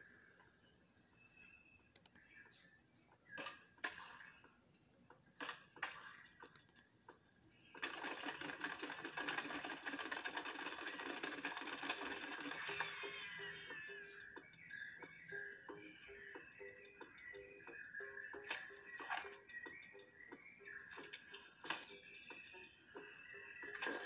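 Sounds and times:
loud dense cartoon soundtrack: 12.4 - 18.9.

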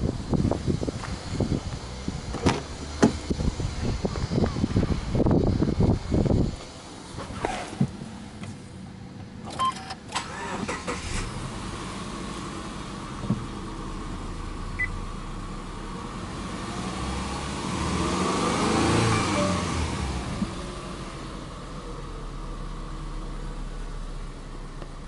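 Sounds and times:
car engine starting and idling: 0.0 - 25.0.

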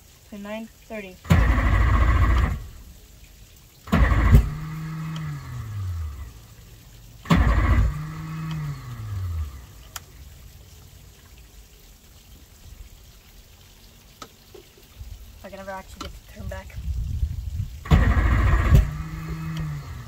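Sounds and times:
outboard engine cranking: 1.2 - 2.8, 3.9 - 6.2, 7.2 - 9.6, 17.8 - 20.0.

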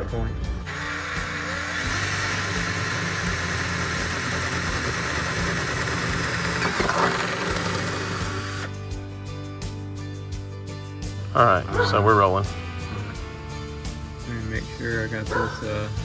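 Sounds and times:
power drill cutting metal: 0.6 - 8.8.

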